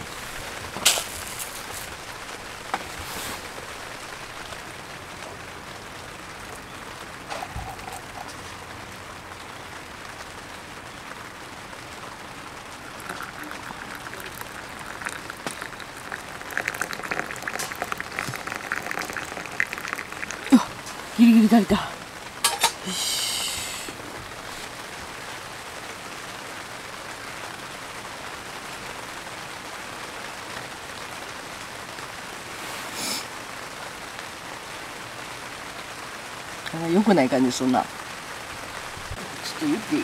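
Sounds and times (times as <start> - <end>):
water pouring into kettle: 7.4 - 8.3, 12.9 - 21.2.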